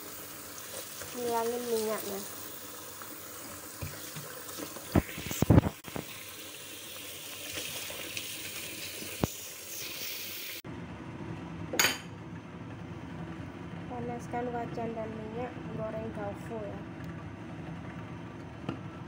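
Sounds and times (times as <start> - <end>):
tap water running into metal bowl: 0.0 - 10.6.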